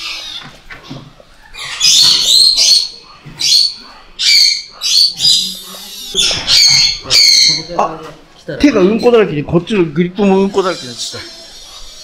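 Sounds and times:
shrill squealing animal calls: 0:00.0 - 0:00.6, 0:01.4 - 0:07.8, 0:10.3 - 0:12.0.

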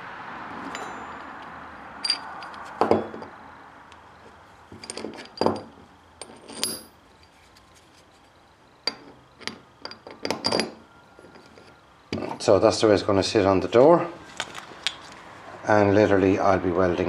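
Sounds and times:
metal parts clinking on wood: 0:00.7 - 0:03.3, 0:04.7 - 0:07.4, 0:08.8 - 0:12.3.

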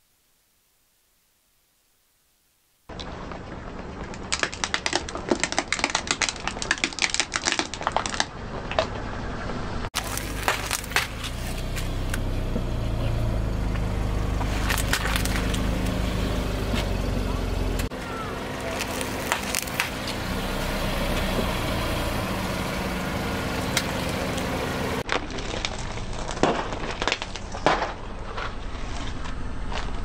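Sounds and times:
plastic toys cracking under tyre: 0:02.9 - 0:09.0, 0:10.0 - 0:12.2, 0:14.4 - 0:16.0, 0:17.8 - 0:20.2, 0:25.0 - 0:30.0
candy shells crunching: 0:04.1 - 0:08.3, 0:10.0 - 0:11.9, 0:14.4 - 0:16.0, 0:17.9 - 0:20.2, 0:25.0 - 0:29.9
car engine hum: 0:08.3 - 0:25.0.

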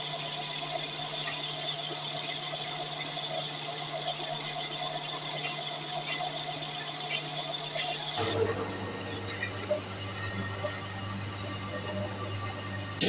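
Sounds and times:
thin high whine: 0:00.0 - 0:13.0
low hum: 0:08.2 - 0:13.0.

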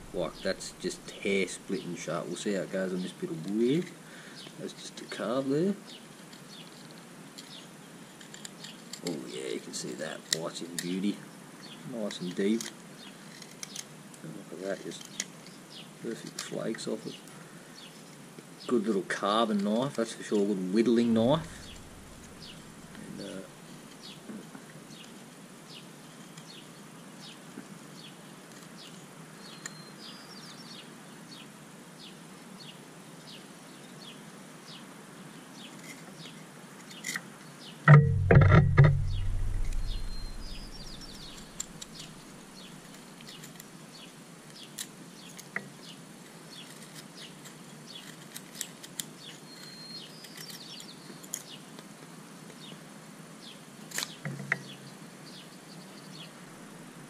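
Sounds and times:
low rumbling and knocks: 0:00.0 - 0:01.2, 0:21.2 - 0:23.0, 0:37.9 - 0:41.8
birds chirping: 0:00.0 - 0:02.0, 0:20.9 - 0:24.2, 0:37.9 - 0:42.9.

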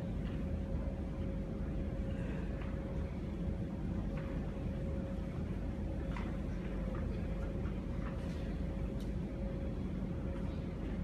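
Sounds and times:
faint clicks and rustles: 0:00.0 - 0:11.0
low room hum: 0:00.0 - 0:11.0.

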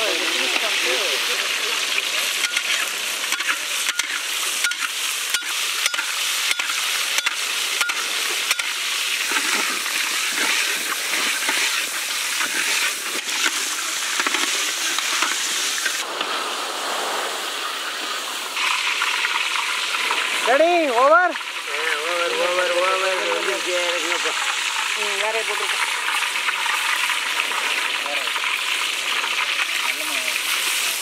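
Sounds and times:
crab sizzling in oil: 0:00.0 - 0:31.0
metal spatula scraping a wok: 0:02.4 - 0:16.0.

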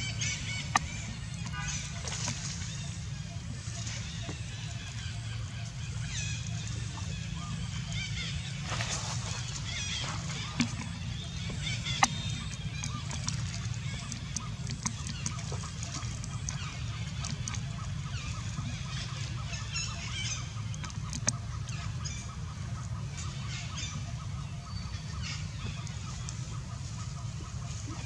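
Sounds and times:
steady low rumble: 0:00.0 - 0:28.0.

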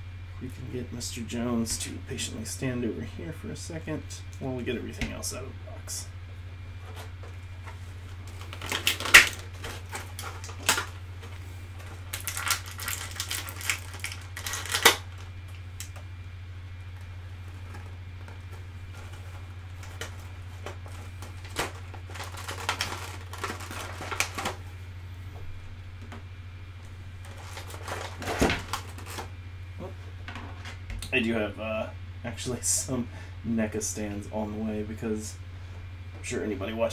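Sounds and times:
steady low hum: 0:00.0 - 0:36.9
plastic packaging crinkling: 0:06.9 - 0:16.0, 0:16.9 - 0:24.8, 0:27.2 - 0:29.4.

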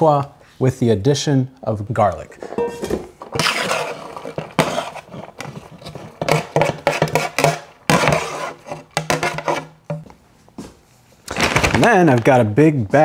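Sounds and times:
metal tray scraping against pot: 0:02.4 - 0:09.8.

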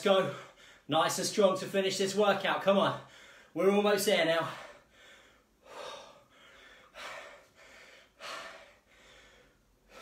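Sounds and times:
man breathing hard: 0:00.2 - 0:00.9, 0:03.0 - 0:03.6, 0:04.4 - 0:10.0.

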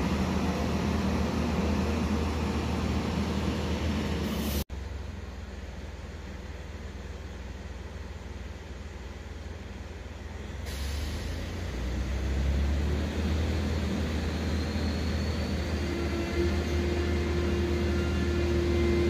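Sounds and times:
diesel engine drone: 0:00.0 - 0:19.0
faint rising whistle: 0:13.7 - 0:19.0.

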